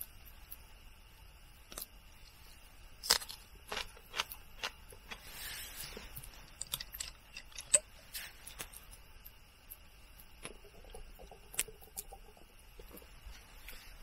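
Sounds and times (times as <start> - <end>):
green onion crunching: 3.0 - 5.2.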